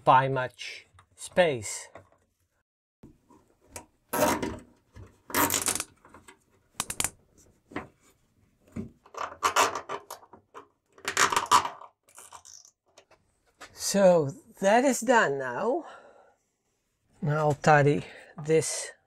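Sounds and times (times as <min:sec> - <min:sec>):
sharp clicks: 0:06.8 - 0:07.1.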